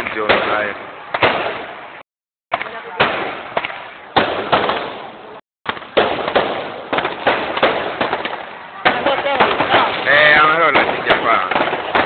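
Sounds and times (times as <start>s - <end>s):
firework bangs: 0.0s - 12.0s
firework crackle: 2.6s - 12.0s.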